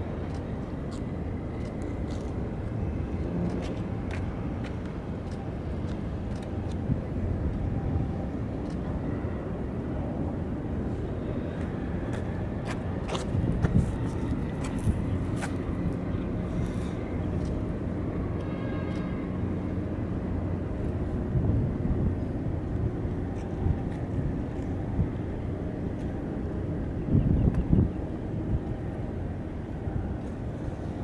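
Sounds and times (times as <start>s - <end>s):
distant engines rumbling: 0.0s - 31.0s.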